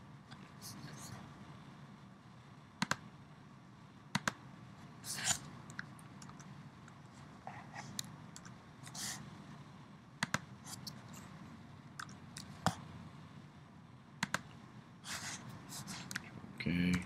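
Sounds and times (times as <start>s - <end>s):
low steady hum: 0.0s - 17.0s
mouse and keyboard clicks: 2.8s - 3.0s, 4.1s - 4.4s, 10.2s - 11.0s, 14.2s - 14.5s.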